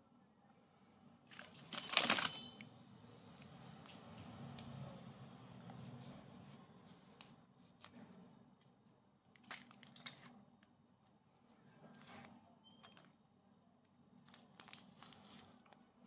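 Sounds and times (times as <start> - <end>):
plastic casing crinkling and tearing: 1.3 - 2.6, 9.3 - 10.3, 14.2 - 15.6.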